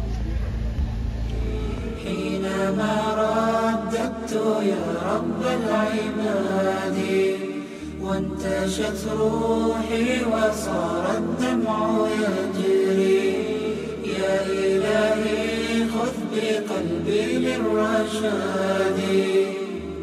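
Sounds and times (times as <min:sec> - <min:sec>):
low hummed drone: 0:00.0 - 0:20.0
devotional singing a cappella: 0:01.6 - 0:20.0.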